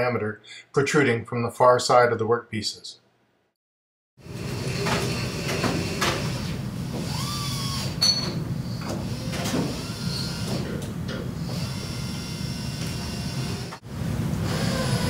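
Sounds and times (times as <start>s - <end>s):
low workshop hum: 4.2s - 15.0s.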